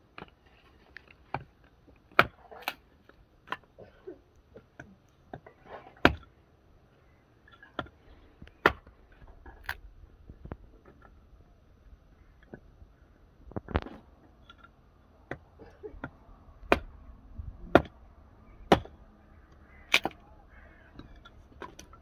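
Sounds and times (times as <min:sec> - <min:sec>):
hatchet chopping firewood: 0:02.1 - 0:02.8, 0:06.0 - 0:06.3, 0:08.6 - 0:08.9, 0:15.3 - 0:16.9, 0:17.6 - 0:18.0, 0:18.6 - 0:19.0, 0:19.9 - 0:20.2.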